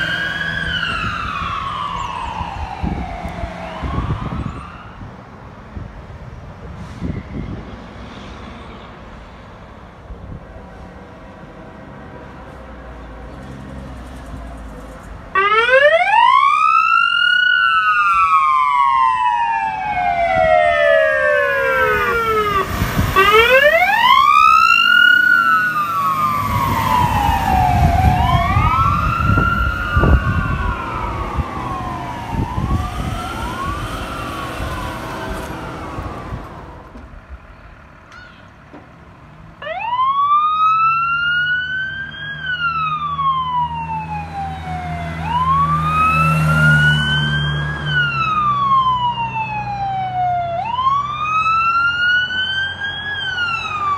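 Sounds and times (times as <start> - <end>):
fire engine siren wailing: 0.0 - 5.5, 14.8 - 37.4, 39.5 - 53.9
truck engine rumbling: 0.0 - 53.9.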